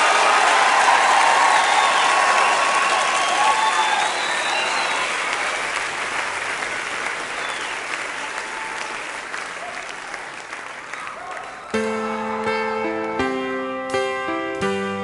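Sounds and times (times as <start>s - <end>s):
audience shouts: 0.0s - 5.7s
audience applauding: 0.0s - 12.4s.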